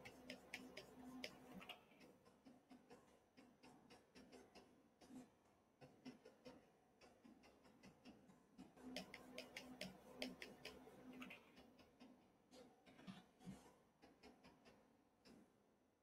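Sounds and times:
faint mouse clicks: 0.0 - 5.2, 5.8 - 12.1.

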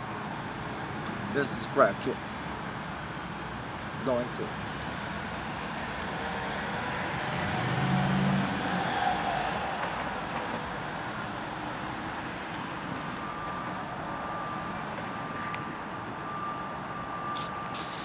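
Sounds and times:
city traffic hum: 0.0 - 18.0
faint steady high tone: 13.2 - 18.0.

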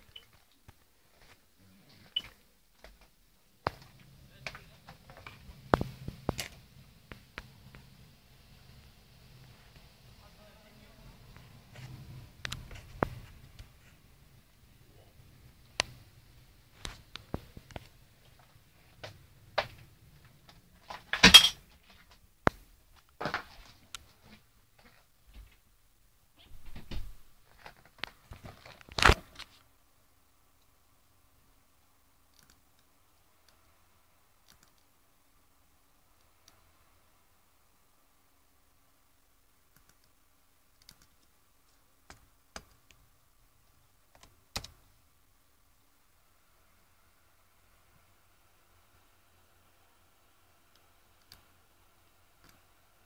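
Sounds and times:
computer keyboard keystrokes: 32.3 - 32.9, 34.4 - 34.9, 40.8 - 41.3, 44.1 - 44.8.

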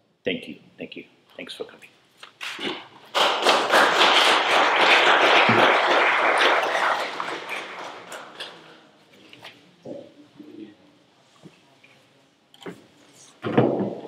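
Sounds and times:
audience applauding: 3.1 - 8.7.

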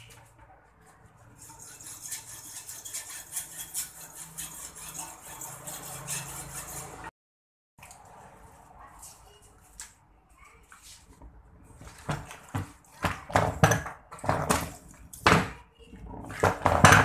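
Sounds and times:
hacksaw rasping on metal: 1.4 - 7.1.

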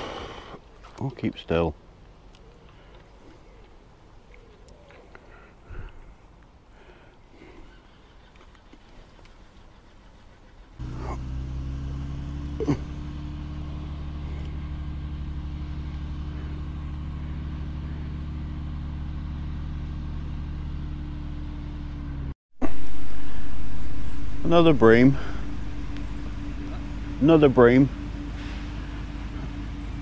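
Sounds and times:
low engine hum: 10.6 - 30.0.

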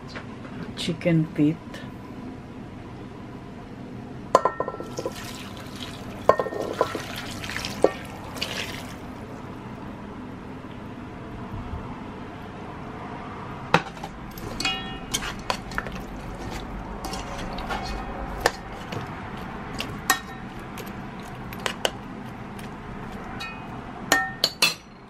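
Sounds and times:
steady low hum: 0.0 - 25.0
metal spoon clinking on a pot: 6.3 - 7.0, 14.3 - 16.1, 19.7 - 22.0, 23.4 - 25.0.

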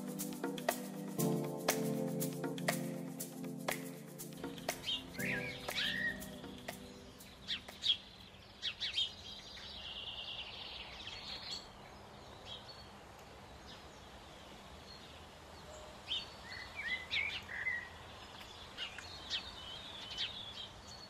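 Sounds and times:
wind rustling foliage: 0.0 - 21.0
small birds chirping: 3.7 - 15.2.

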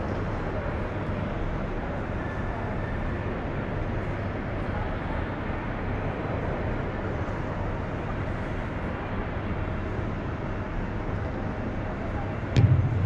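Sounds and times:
constant low hum: 12.6 - 13.0.

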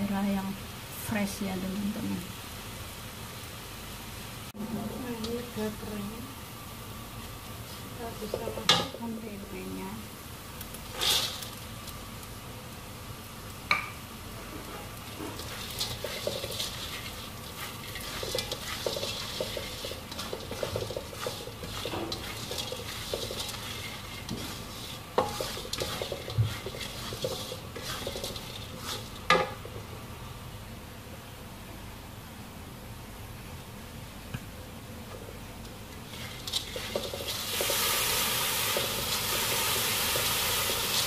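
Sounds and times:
oil sizzling: 0.0 - 30.9, 35.1 - 41.0
spatula scraping a wok: 10.9 - 11.6, 14.4 - 29.9, 36.0 - 41.0
spatula knocking on wok: 18.1 - 23.6, 25.2 - 28.4.

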